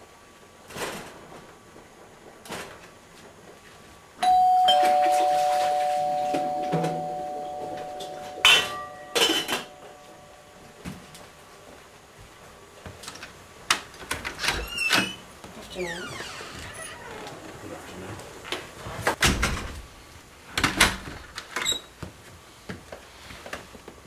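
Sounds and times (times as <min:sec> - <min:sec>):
two-tone doorbell chime: 0:04.2 - 0:10.8
kitchen things clattering: 0:04.6 - 0:10.2.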